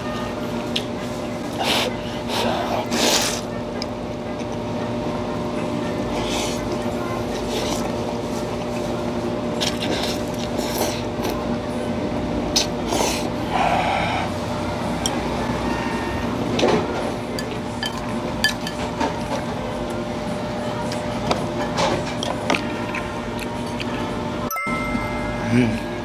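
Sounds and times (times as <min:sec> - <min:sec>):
steady machine hum: 0:00.0 - 0:26.0
chewing: 0:22.1 - 0:24.2.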